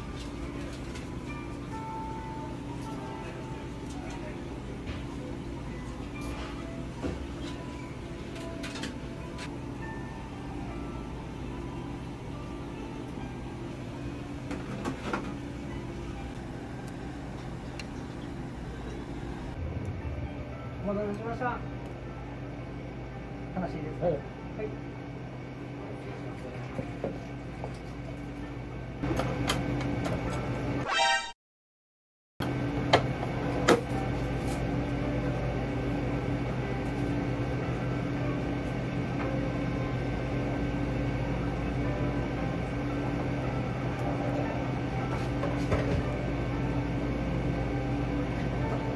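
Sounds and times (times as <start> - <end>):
steady low hum: 0.0 - 30.8.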